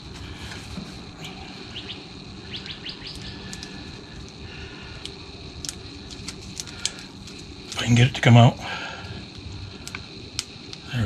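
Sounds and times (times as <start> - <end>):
steady low hum: 0.0 - 11.0
small birds chirping: 1.6 - 4.1.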